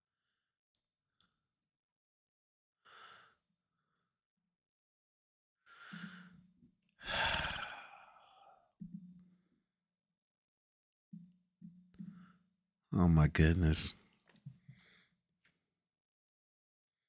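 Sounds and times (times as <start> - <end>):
man humming mm: 7.0 - 8.4
man sighing: 7.0 - 8.5.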